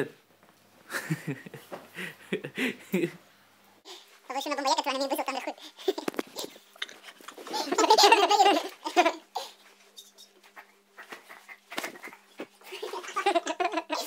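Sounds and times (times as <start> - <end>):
loud laughter: 11.9 - 14.0.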